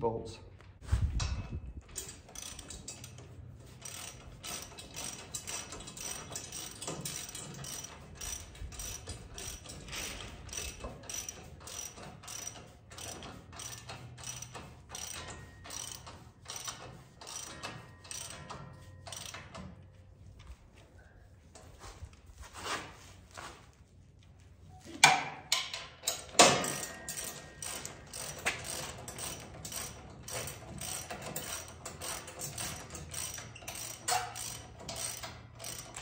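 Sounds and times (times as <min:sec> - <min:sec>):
ratchet wrench clicking: 0:02.0 - 0:19.7, 0:25.5 - 0:36.0.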